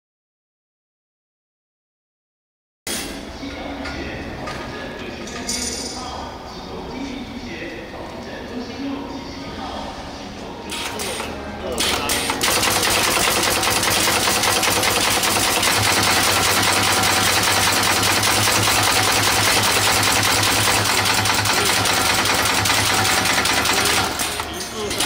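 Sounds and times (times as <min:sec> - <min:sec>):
welding machine rapid clatter: 0:10.7 - 0:25.0.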